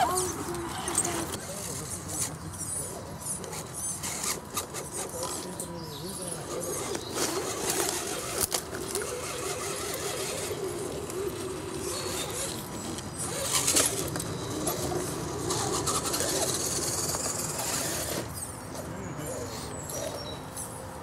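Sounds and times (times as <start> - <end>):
electric motor whining: 3.2 - 18.4.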